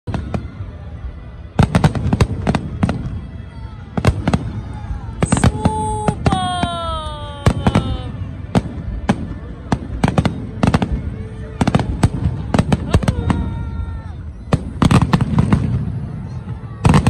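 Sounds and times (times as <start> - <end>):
fireworks bursting: 0.1 - 17.0.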